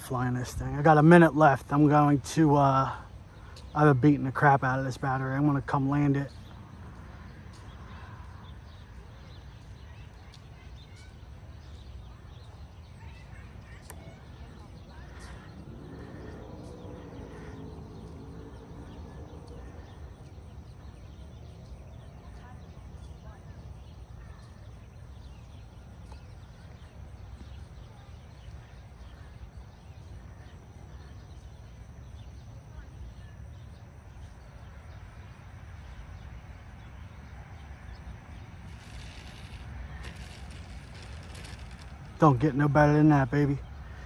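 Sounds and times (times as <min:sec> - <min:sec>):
faint bird chirps: 0:01.6 - 0:44.0
wind rumbling on microphone: 0:37.7 - 0:42.6
electric model plane motor humming: 0:38.6 - 0:42.2.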